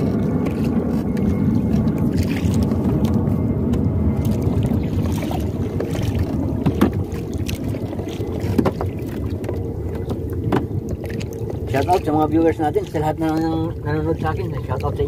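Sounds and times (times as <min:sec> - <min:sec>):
water slapping boat hull: 0:00.0 - 0:15.0
wind on microphone: 0:00.0 - 0:15.0
knock or splash: 0:05.1 - 0:07.7, 0:08.4 - 0:09.2, 0:10.5 - 0:11.2.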